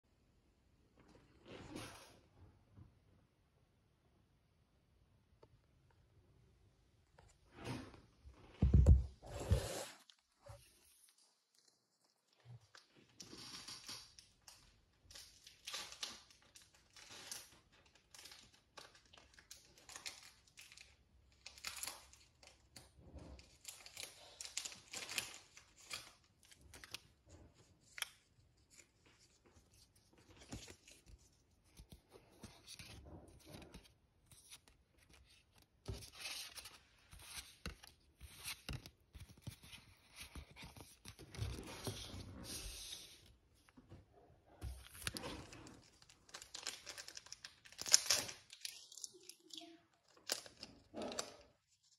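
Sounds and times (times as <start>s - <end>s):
packaging rustling and ripping: 23.4s - 27.1s, 44.7s - 49.4s.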